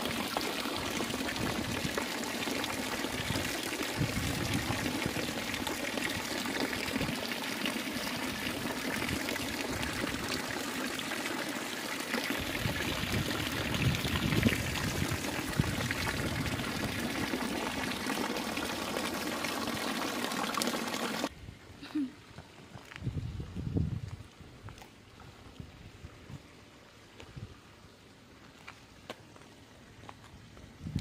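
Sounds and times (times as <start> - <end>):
fountain water splashing: 0.0 - 21.3.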